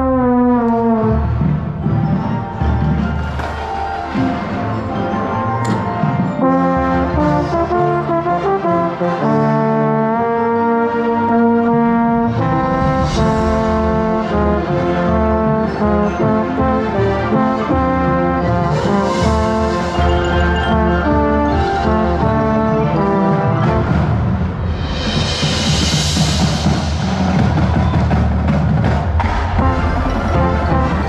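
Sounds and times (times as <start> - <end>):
trombone: 0.0 - 1.8, 5.6 - 26.7, 29.2 - 31.0
marching band brass chords: 0.0 - 31.0
sharp percussion hits: 12.1 - 15.8, 18.7 - 31.0.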